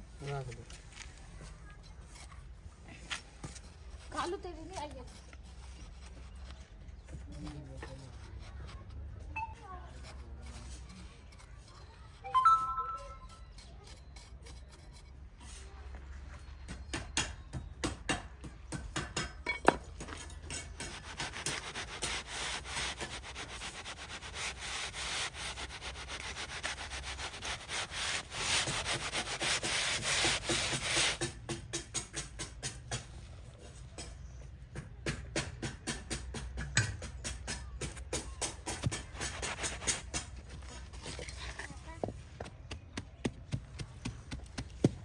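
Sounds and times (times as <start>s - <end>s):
gritty scraping of cement mix: 0.2s - 9.2s, 9.9s - 12.2s, 19.6s - 31.5s, 38.0s - 42.3s.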